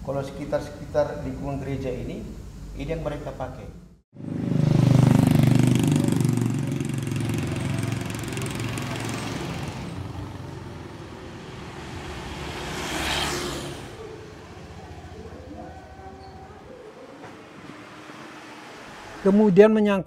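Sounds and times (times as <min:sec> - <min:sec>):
vehicle engine running: 0:04.2 - 0:19.3
motor scooter passing: 0:04.2 - 0:19.4.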